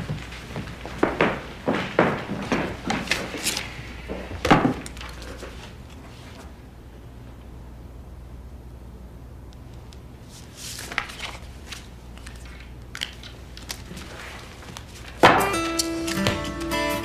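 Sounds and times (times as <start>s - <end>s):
low room hum: 0.0s - 17.0s
paper rustling and crinkling: 1.8s - 6.5s, 10.2s - 16.7s
guitar strum: 15.3s - 17.0s.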